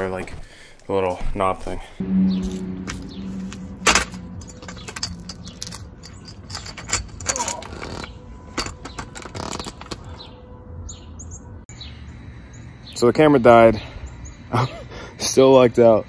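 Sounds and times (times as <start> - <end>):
folding chair clicks and rattles: 3.8 - 10.1.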